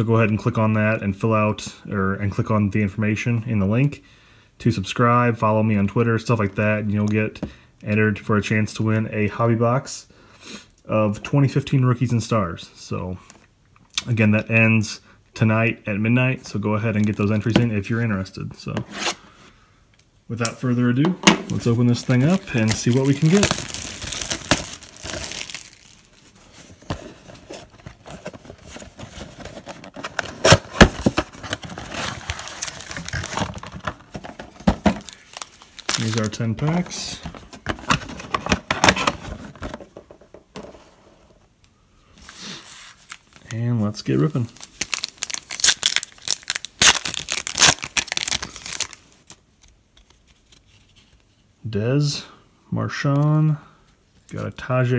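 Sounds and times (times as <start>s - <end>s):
wrapper ripping and crinkling: 21.4s - 26.8s, 27.5s - 39.1s, 42.7s - 51.1s
cardboard box rustling and scraping: 26.4s - 34.9s.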